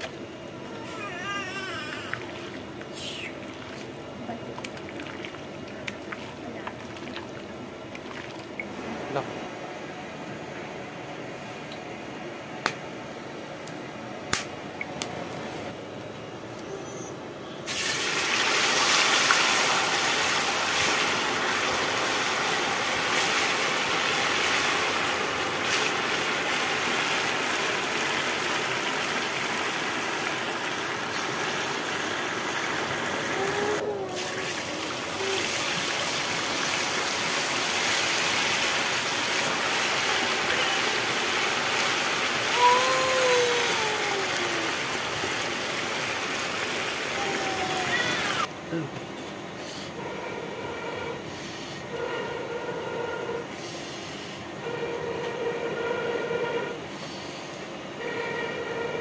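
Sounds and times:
meat sizzling in hot oil: 17.7s - 33.2s, 34.4s - 43.5s.

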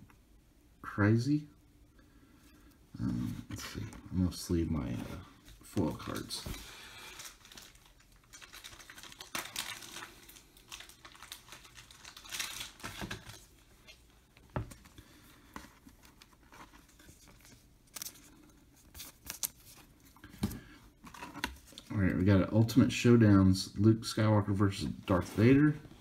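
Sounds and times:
plastic sleeves crinkling: 5.6s - 20.3s.

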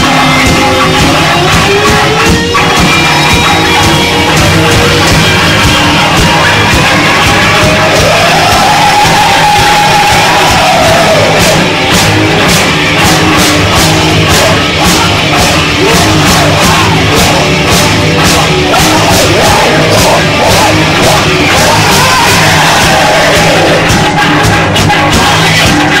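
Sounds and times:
distorted electric guitar and bass: 0.0s - 26.0s
drums with cymbal beat: 0.0s - 26.0s
vocalist yelling and singing: 0.0s - 26.0s.

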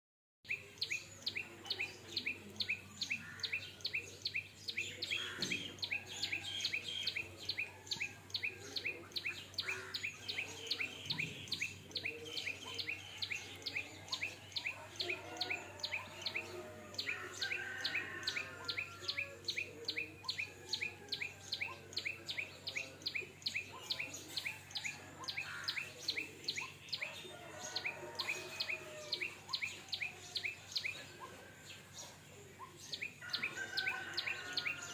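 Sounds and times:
soft chirping and warbling calls: 0.5s - 34.9s.

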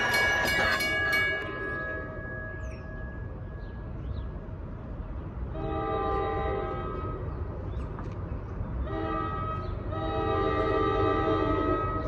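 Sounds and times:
train horn blast: 5.5s - 7.3s, 8.8s - 12.0s.

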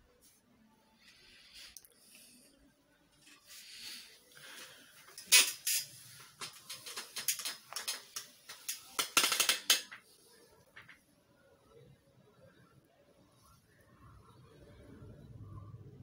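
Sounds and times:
clatter of sharp clicks and knocks: 6.4s - 10.0s.

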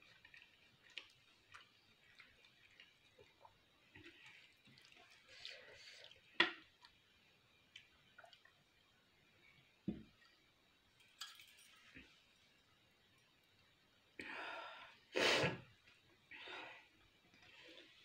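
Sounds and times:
person breathing: 14.2s - 15.5s, 16.3s - 17.9s.

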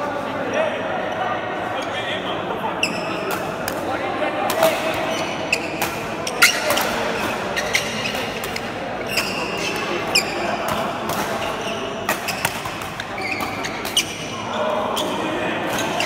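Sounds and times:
spectators chattering: 0.0s - 16.0s
shoes squeaking on court floor: 1.1s - 3.6s, 4.6s - 16.0s
rackets hitting shuttlecock: 3.2s - 14.4s.

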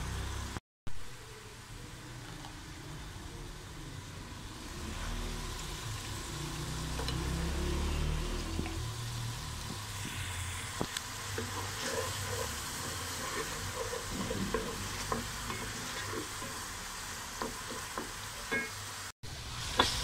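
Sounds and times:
sauce sizzling in oil: 2.0s - 20.0s
wooden spoon knocking and scraping pot: 10.8s - 16.7s, 17.3s - 18.8s.

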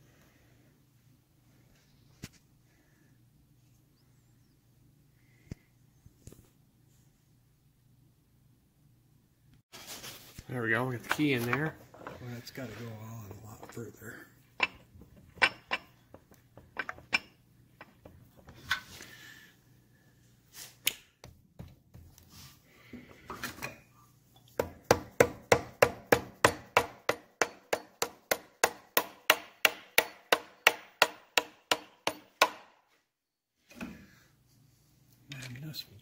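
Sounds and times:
sharp hammer taps on metal tube: 24.6s - 32.6s.

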